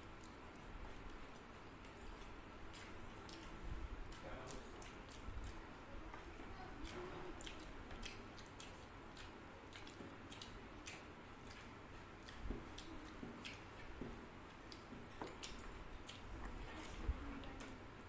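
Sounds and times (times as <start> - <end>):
wet chewing and mouth clicks: 0.0 - 17.8.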